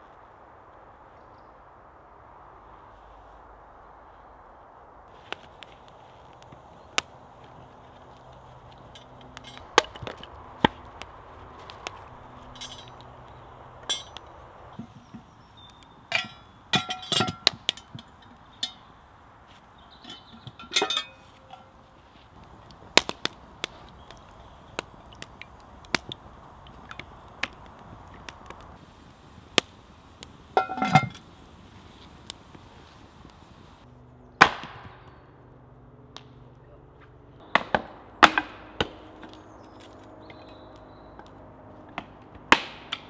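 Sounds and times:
wood fire crackling: 0.0 - 34.9, 37.3 - 43.0
cast iron pot lid clinking: 12.5 - 13.0, 13.8 - 14.2, 16.1 - 18.9, 19.9 - 21.8, 30.6 - 31.2.

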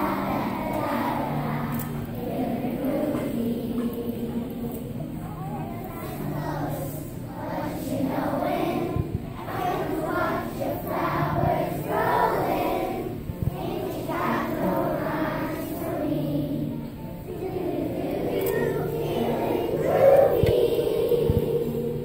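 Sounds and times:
children singing together: 0.0 - 22.0.

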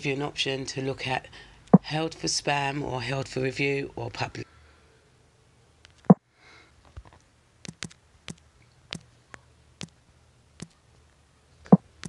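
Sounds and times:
smartphone keyboard taps: 7.6 - 9.1.

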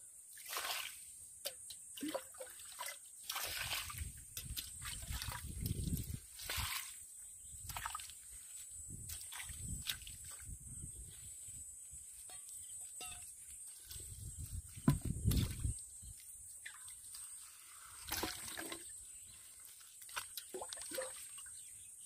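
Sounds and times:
water dripping: 1.4 - 6.8, 18.0 - 19.0, 19.6 - 21.6
muddy water sloshing: 2.0 - 8.4, 9.0 - 10.6, 13.7 - 21.6.

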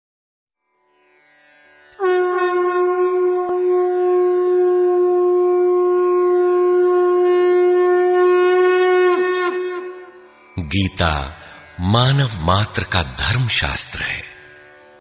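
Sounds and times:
conch shell blown: 2.0 - 10.4.

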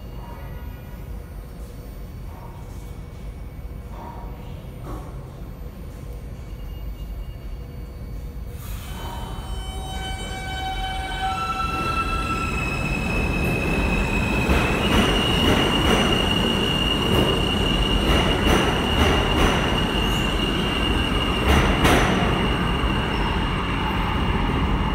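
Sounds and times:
subway train motor whine: 4.8 - 24.9.

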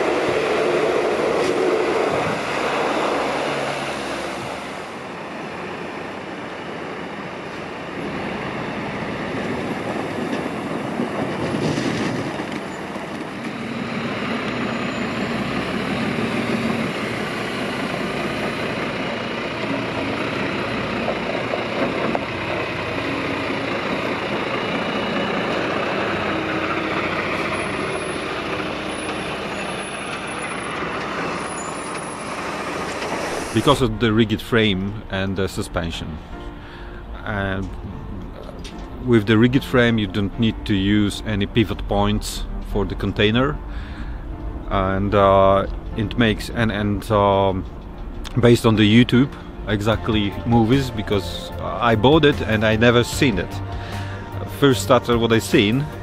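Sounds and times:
diesel truck engine running: 0.0 - 56.0
tyre and road noise: 0.0 - 56.0.

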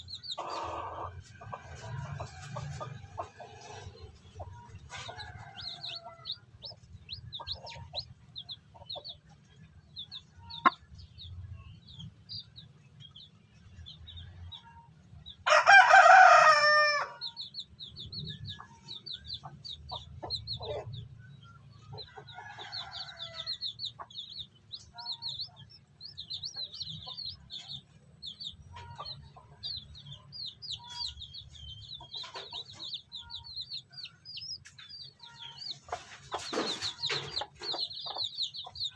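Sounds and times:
chicks peeping: 0.0 - 38.9
rooster crowing: 15.5 - 17.3.

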